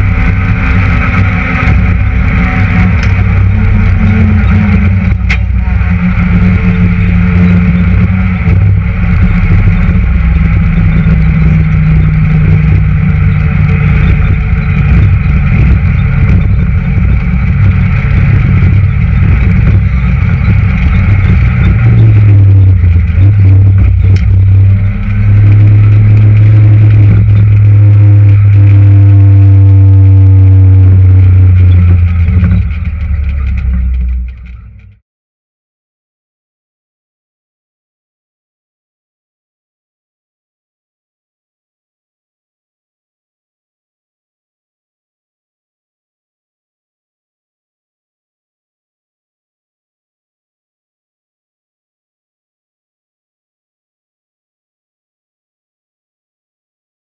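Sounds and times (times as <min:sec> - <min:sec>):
whining tone sliding in pitch: 0:00.0 - 0:34.3
car engine running hard: 0:00.0 - 0:35.0
road and tyre noise: 0:00.0 - 0:35.0.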